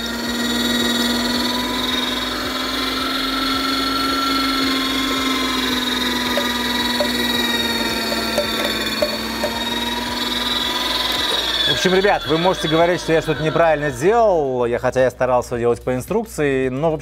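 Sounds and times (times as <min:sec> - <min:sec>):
electric grinder motor hum: 0:00.0 - 0:14.3.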